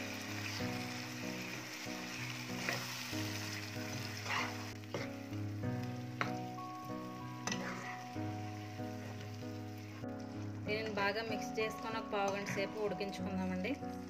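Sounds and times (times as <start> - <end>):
gravy sizzling in a pan: 0.0 - 14.0
spatula scraping a pan: 2.1 - 5.2, 7.4 - 8.2.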